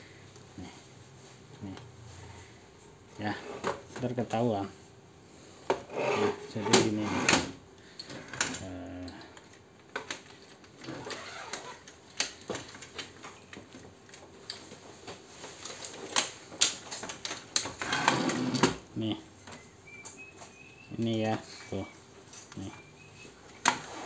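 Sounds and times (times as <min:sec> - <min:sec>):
plastic and metal parts rattling: 0:08.1 - 0:18.2.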